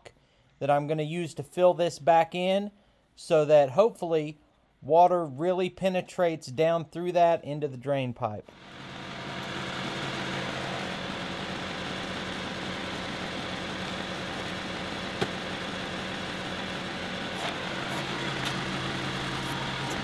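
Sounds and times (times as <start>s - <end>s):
diesel tractor engine running: 8.5s - 20.0s.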